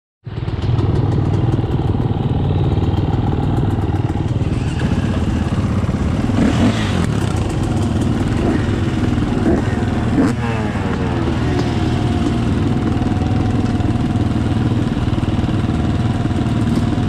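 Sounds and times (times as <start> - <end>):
dirt bike engine idling: 0.2 - 17.0
engine revving: 3.7 - 17.0.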